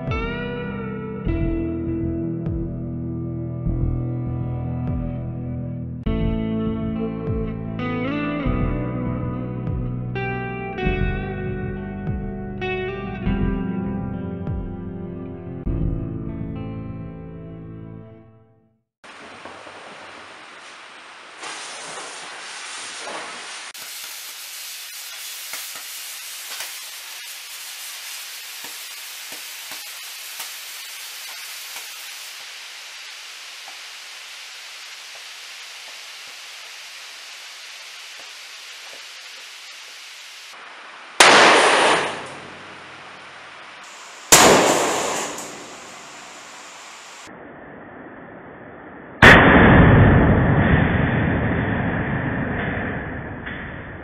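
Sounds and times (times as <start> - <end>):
crackling pops: 19.1 - 37.0, 37.8 - 39.5, 41.2 - 42.7, 43.8 - 47.3
battery venting hiss: 19.1 - 47.3
propane torch hissing: 20.6 - 40.6, 41.2 - 47.3
sharp bang: 41.2 - 42.6, 44.3 - 46.3, 49.2 - 50.4.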